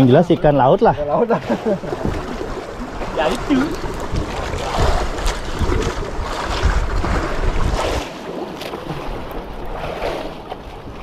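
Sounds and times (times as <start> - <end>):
water washing around boat: 0.0 - 11.0
wind buffeting microphone: 1.8 - 8.1.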